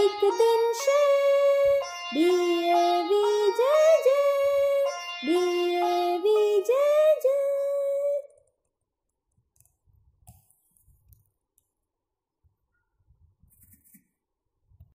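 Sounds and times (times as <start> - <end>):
anthem singing: 0.0 - 8.0.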